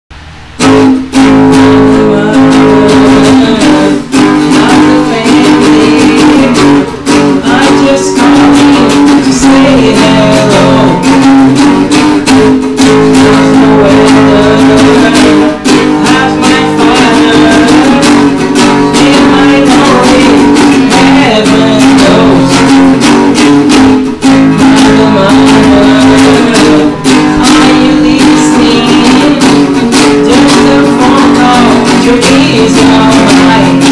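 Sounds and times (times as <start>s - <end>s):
strummed acoustic guitar: 0.1s - 33.9s
electric bass: 8.2s - 32.0s.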